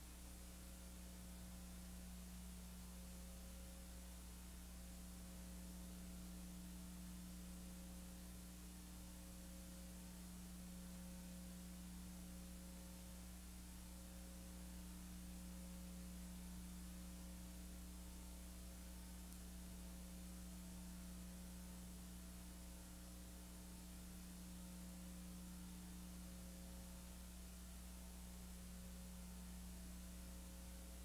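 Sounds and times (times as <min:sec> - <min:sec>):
faint mains hum: 0:00.0 - 0:31.0.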